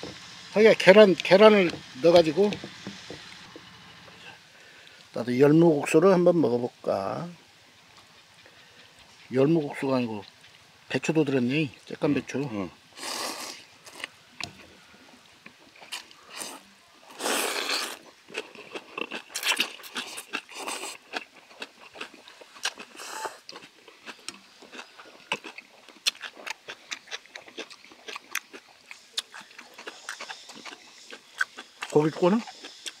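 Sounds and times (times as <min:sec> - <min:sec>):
people slurping noodles: 0:13.0 - 0:14.1, 0:16.3 - 0:18.1, 0:22.8 - 0:23.5.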